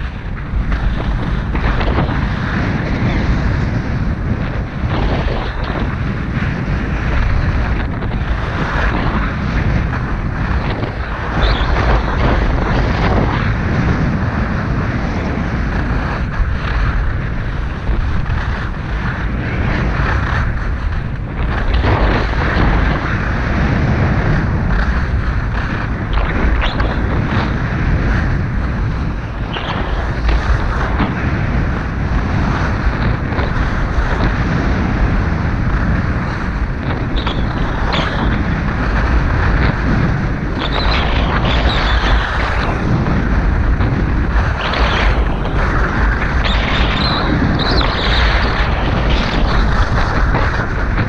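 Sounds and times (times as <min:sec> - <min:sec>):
skis scraping on snow: 0:00.0 - 0:51.0
wind buffeting microphone: 0:00.0 - 0:51.0.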